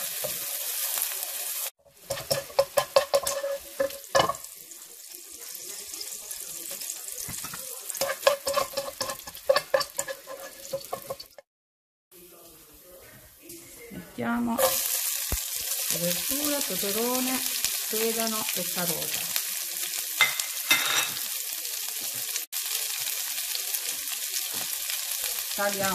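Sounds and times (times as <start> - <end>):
onion sizzling in butter: 0.0 - 11.4, 14.4 - 25.9
wooden spatula stirring: 1.9 - 4.3, 7.3 - 11.4.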